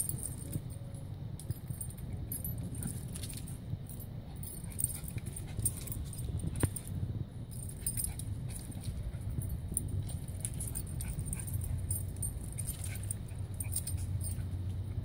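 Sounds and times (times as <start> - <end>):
collar tags jingling: 0.0 - 15.0
low rumble: 0.0 - 15.0
dog scampering: 7.7 - 14.7.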